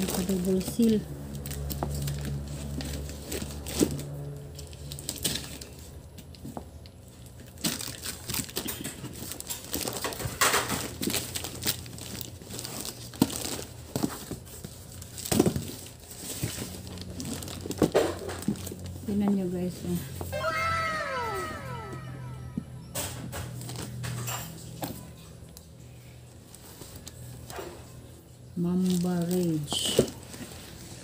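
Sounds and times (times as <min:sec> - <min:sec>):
packaging rustling and tearing: 0:11.0 - 0:14.3.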